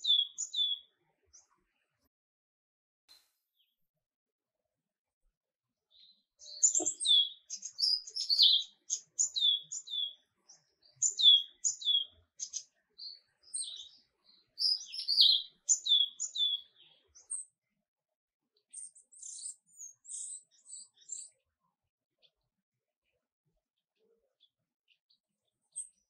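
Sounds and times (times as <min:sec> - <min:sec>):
small birds chirping: 0:00.0 - 0:02.1, 0:05.8 - 0:26.0.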